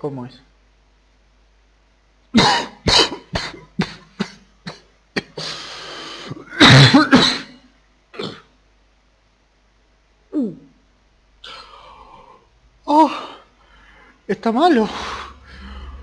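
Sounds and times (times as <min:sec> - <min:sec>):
man coughing: 0:02.4 - 0:05.5, 0:06.3 - 0:07.6
man drawing breath: 0:14.9 - 0:16.0.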